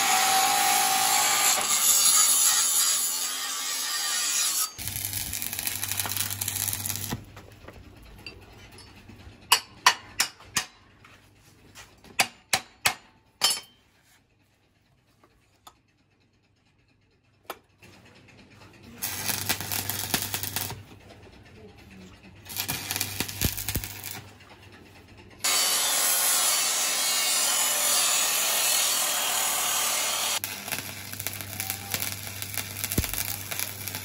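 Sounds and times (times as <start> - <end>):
angle grinder cutting steel: 0.0 - 7.2, 19.0 - 20.8, 22.5 - 24.2, 25.4 - 34.0
welding arc crackling: 4.8 - 7.3, 19.0 - 20.9, 22.4 - 24.3, 25.5 - 34.0.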